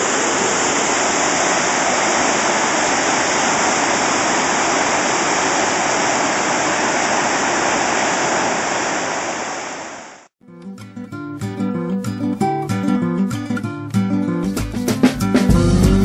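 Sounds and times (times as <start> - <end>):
water rushing from dam: 0.0 - 10.3
acoustic guitar music: 10.4 - 16.0.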